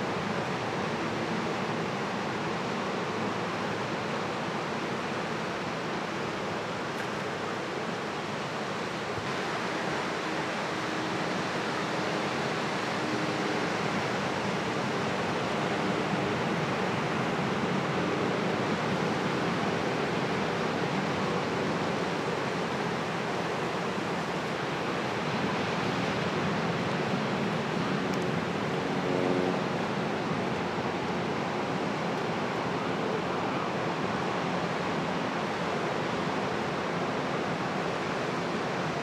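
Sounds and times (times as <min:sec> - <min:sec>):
ocean surf washing ashore: 0:00.0 - 0:39.0.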